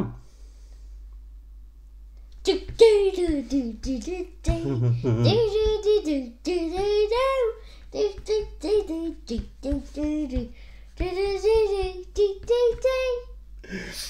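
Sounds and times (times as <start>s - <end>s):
child singing: 2.4s - 13.4s.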